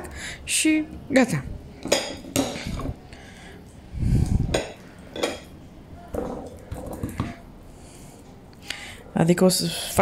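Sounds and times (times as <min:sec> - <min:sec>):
fork clinking and scraping plate: 0:04.4 - 0:05.6.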